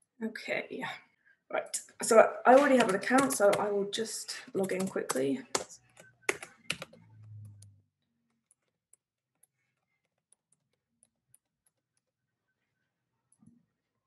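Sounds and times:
keyboard typing: 2.5 - 3.8, 4.5 - 12.2.

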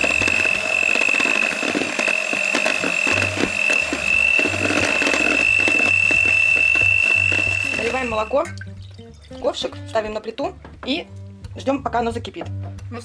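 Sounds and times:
electric hand mixer whining: 0.0 - 8.4.

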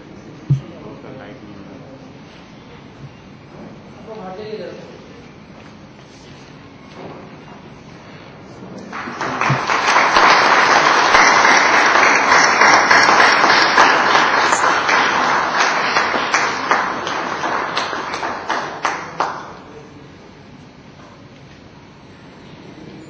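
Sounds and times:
audience applauding: 8.9 - 19.8.

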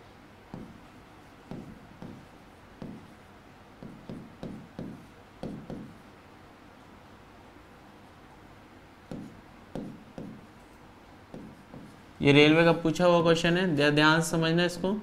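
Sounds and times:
marker pen writing on whiteboard: 0.5 - 6.1, 9.0 - 12.1.

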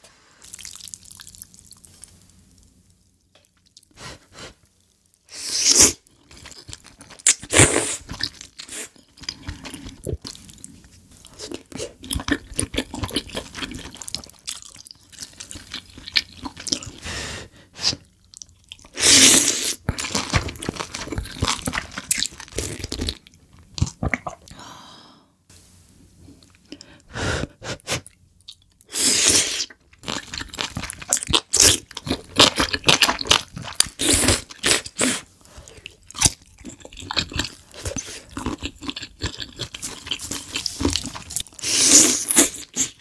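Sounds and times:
wet chewing and smacking: 29.7 - 35.0, 35.7 - 41.6
slurping noodles: 39.7 - 43.0.

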